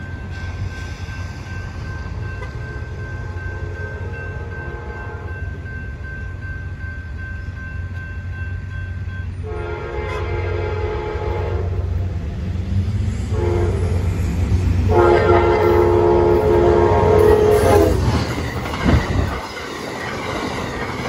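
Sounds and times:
train rumble: 0.0s - 21.0s
train horn blasts: 3.6s - 5.5s, 9.4s - 12.0s, 13.2s - 14.2s, 14.8s - 18.1s.

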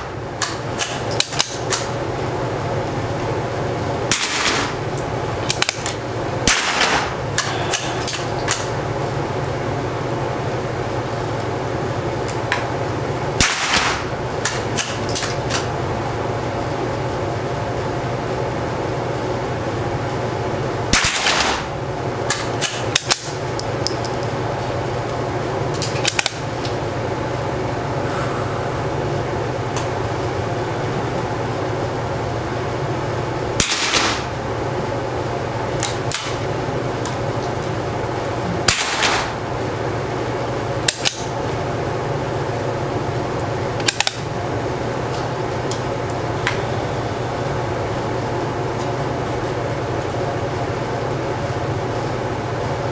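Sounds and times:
steady hum: 0.0s - 52.9s
rifle shots with echo: 4.1s - 4.8s, 6.5s - 7.2s, 13.4s - 14.1s, 20.9s - 21.7s, 33.6s - 34.3s, 38.7s - 39.4s.

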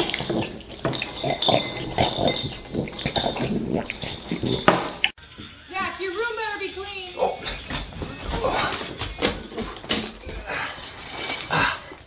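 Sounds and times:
sloppy eating noises: 0.0s - 5.2s.

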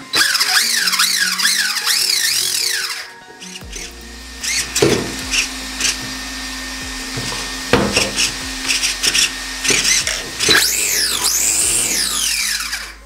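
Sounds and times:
electric motor whining: 0.0s - 13.0s
steady low hum: 3.6s - 13.0s.

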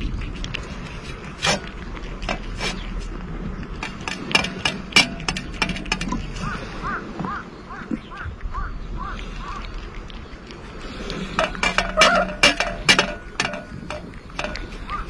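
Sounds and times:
cats eating from metal dish: 0.0s - 6.5s, 10.4s - 15.0s.

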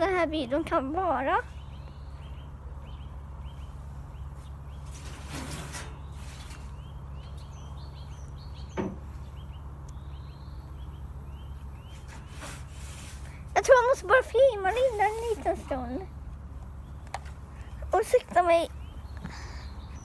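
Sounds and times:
low outdoor background hum: 0.0s - 20.0s
small bird chirping: 1.4s - 5.1s, 5.9s - 12.4s, 16.7s - 20.0s.

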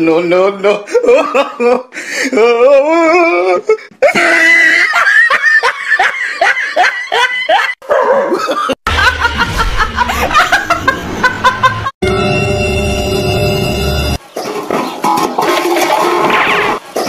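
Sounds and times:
hearty laughter in pulses: 4.0s - 12.0s
woman laughing loudly: 4.0s - 12.0s
low hum: 8.9s - 14.2s.

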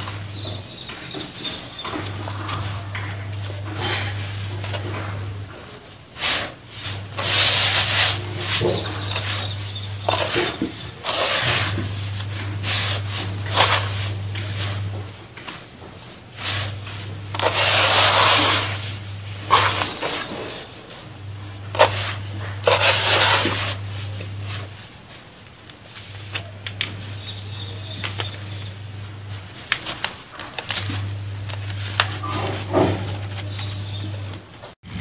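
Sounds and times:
hands rubbing gritty dry mix: 0.0s - 34.8s.

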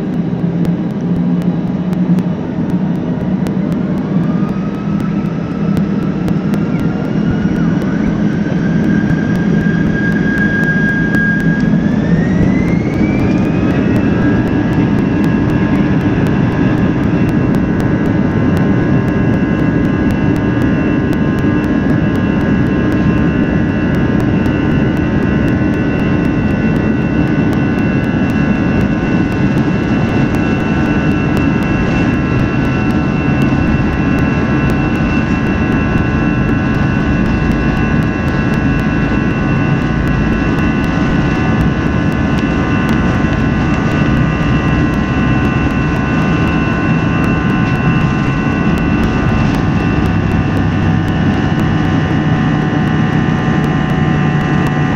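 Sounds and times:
jet engines spooling up: 0.0s - 54.9s.

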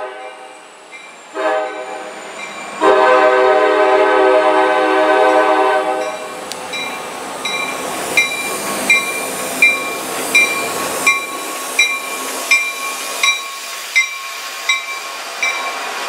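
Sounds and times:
train horn chord: 0.0s - 0.6s, 1.3s - 2.1s, 2.8s - 6.3s
locomotive bell ringing: 0.9s - 3.1s, 6.0s - 15.9s.

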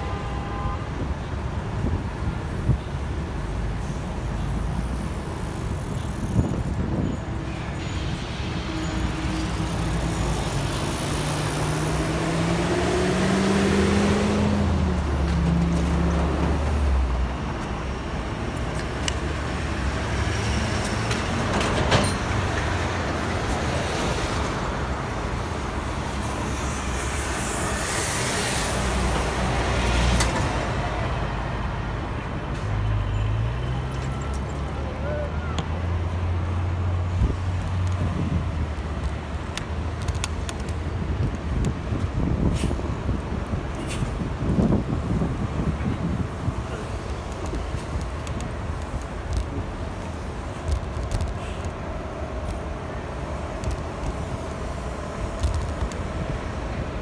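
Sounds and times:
cars driving past: 3.5s - 43.2s.

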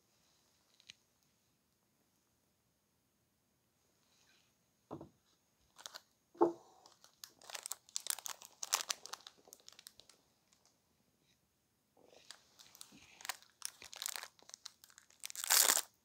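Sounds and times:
plastic wrapper crinkling: 5.7s - 10.7s, 12.1s - 16.0s.

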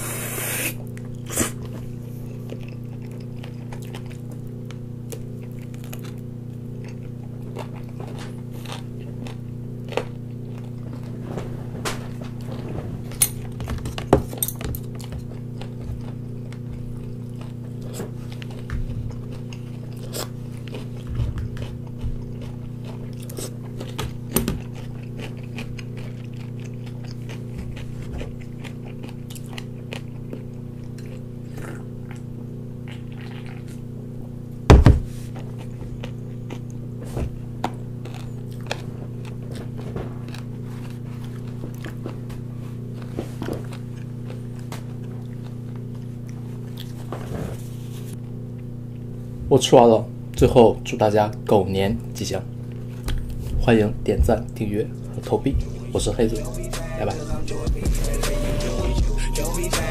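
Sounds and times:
chewing and crunching food: 0.8s - 58.6s
low hum: 52.0s - 59.9s.

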